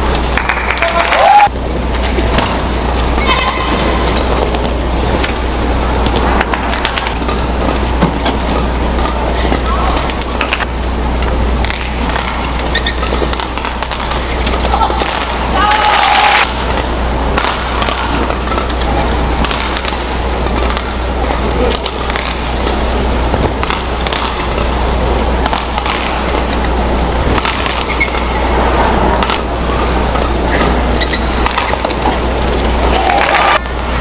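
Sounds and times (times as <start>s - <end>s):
crowd and hall noise: 0.0s - 34.0s
low hum: 0.0s - 34.0s
racket striking shuttlecock: 11.6s - 18.8s, 19.4s - 21.0s, 23.6s - 24.8s, 25.4s - 26.7s, 27.3s - 32.2s.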